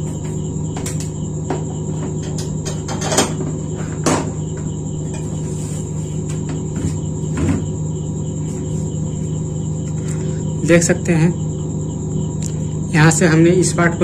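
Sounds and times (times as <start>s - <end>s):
high-pitched whine: 0.0s - 14.0s
steady low hum: 0.0s - 14.0s
knocks and rattles of plastic parts: 0.2s - 5.2s.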